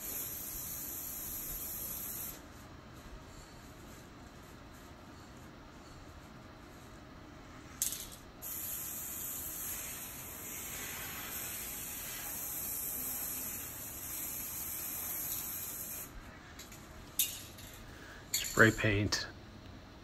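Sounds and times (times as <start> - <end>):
spray paint can hissing: 0.0 - 2.6, 7.8 - 17.3.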